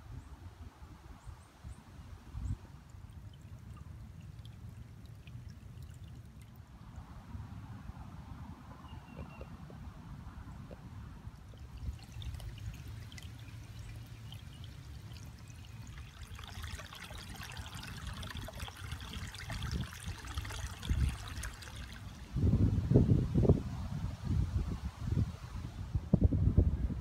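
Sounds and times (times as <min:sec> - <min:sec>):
wind rumble on microphone: 0:00.0 - 0:03.6, 0:06.8 - 0:15.2, 0:17.0 - 0:27.0
water trickling and splashing: 0:02.2 - 0:07.6, 0:10.6 - 0:22.6.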